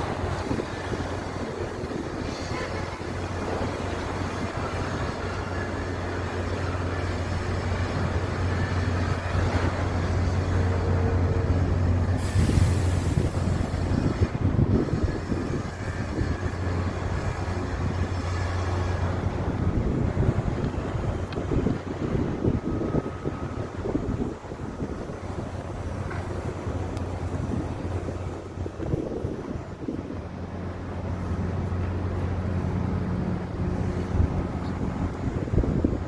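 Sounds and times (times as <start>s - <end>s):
wind rumbling on microphone: 0.0s - 36.0s
short burst of hiss: 12.2s - 13.8s.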